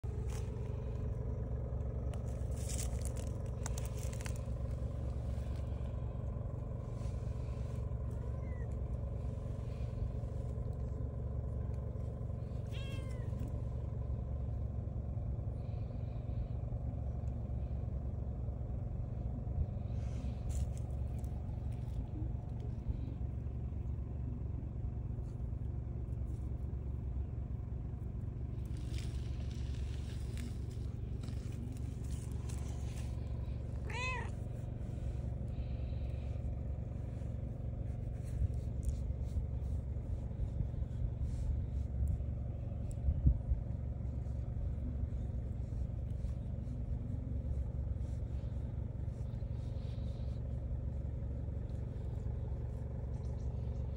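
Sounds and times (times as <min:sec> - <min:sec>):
steady low rumble: 0:00.0 - 0:53.9
cat meowing: 0:08.2 - 0:08.7, 0:12.6 - 0:13.4, 0:33.8 - 0:34.4.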